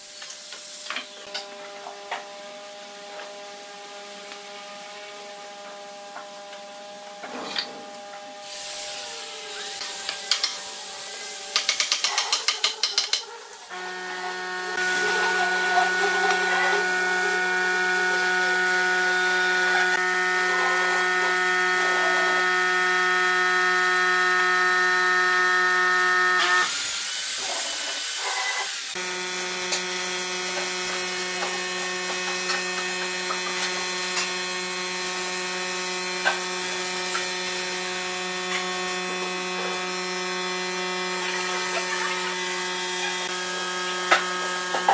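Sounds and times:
electric hum: 0:13.6 - 0:26.8, 0:28.9 - 0:44.9.

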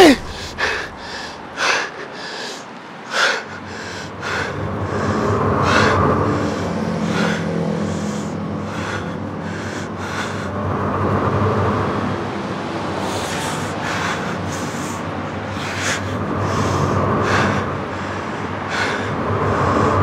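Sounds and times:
short breaths or gasps: 0:00.0 - 0:02.6.

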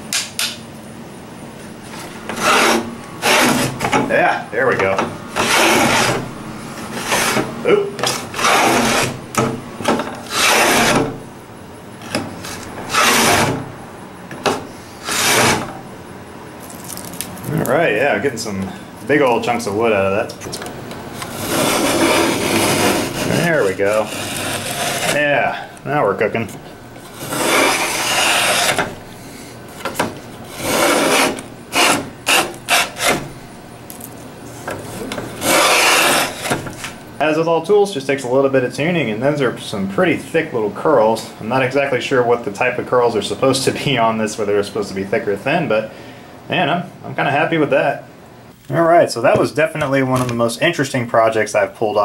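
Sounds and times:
wooden plane rasping through board: 0:02.3 - 0:04.0, 0:05.4 - 0:06.2, 0:06.9 - 0:09.2, 0:10.2 - 0:11.2, 0:12.4 - 0:13.6, 0:15.0 - 0:15.7, 0:21.3 - 0:25.3, 0:27.0 - 0:28.9, 0:29.8 - 0:33.3, 0:35.4 - 0:36.9.

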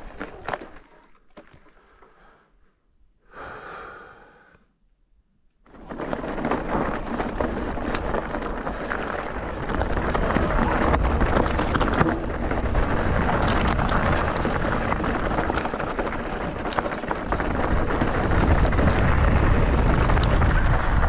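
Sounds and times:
e-bike rolling: 0:00.0 - 0:02.4, 0:05.6 - 0:21.0
wind on microphone: 0:09.4 - 0:21.0.

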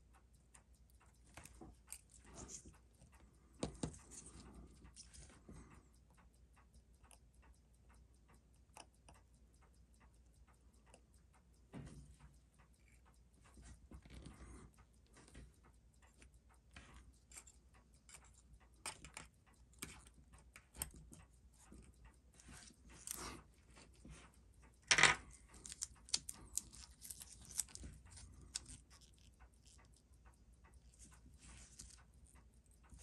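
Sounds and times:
metal parts clicking and tapping: 0:01.2 - 0:05.4, 0:16.7 - 0:29.9.

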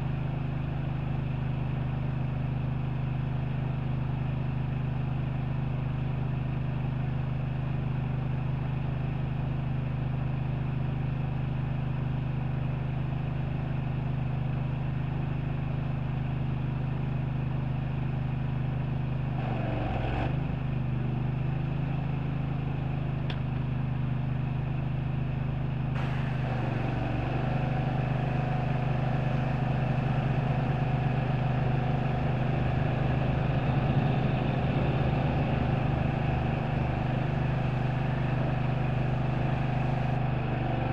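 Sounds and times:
engine droning: 0:17.0 - 0:40.9.

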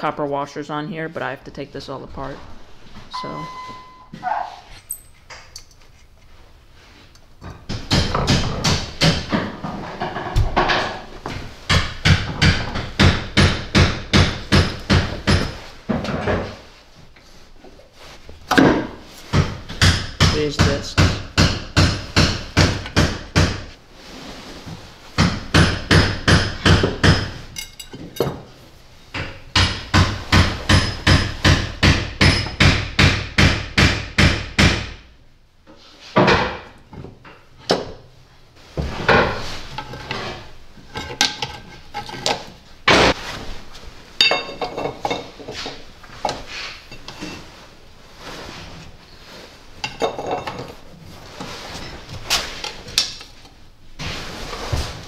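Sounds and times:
metal parts clanking: 0:27.5 - 0:28.5
hammer striking metal: 0:29.6 - 0:34.9.

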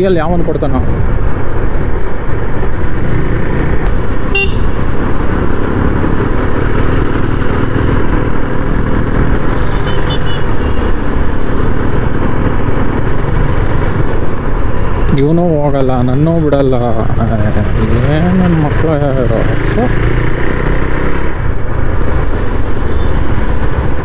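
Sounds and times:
motorcycle road and wind rush: 0:00.0 - 0:24.0
horn toot: 0:04.3 - 0:04.7.

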